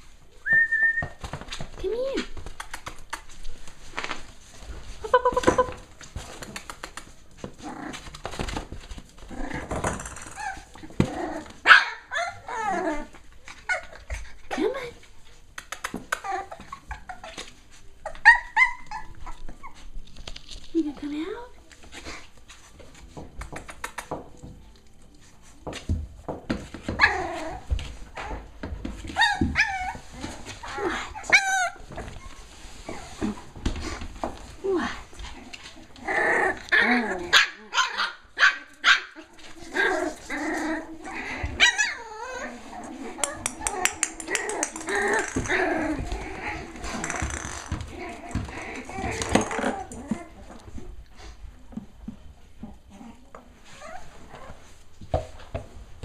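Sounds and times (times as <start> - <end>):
puppies yapping and whining: 7.5 - 14.4, 15.9 - 20.1, 26.6 - 34.0, 35.6 - 50.8.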